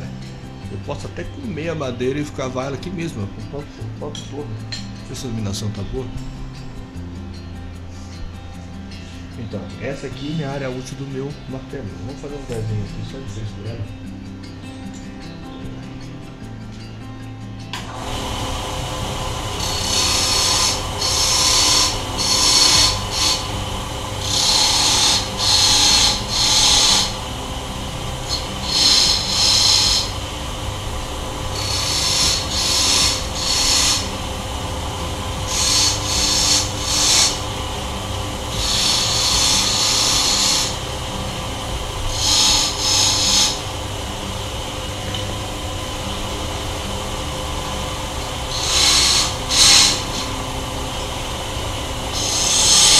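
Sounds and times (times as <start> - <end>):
wood lathe humming: 17.8 - 52.9
chisel scraping wood: 19.6 - 23.6, 24.2 - 27.3, 28.0 - 30.2, 31.5 - 34.3, 35.0 - 37.6, 38.6 - 40.9, 42.1 - 43.6, 48.5 - 50.3, 52.2 - 52.9.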